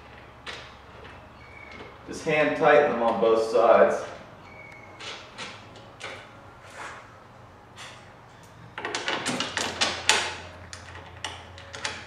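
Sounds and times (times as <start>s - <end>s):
metal bolts scraping and rattling: 7.8s - 12.0s.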